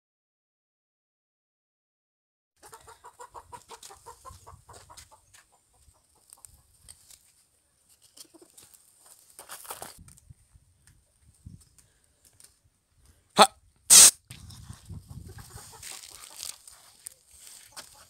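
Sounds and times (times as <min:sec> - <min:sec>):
twigs and leaves crackling: 0:06.2 - 0:10.3, 0:15.6 - 0:18.0.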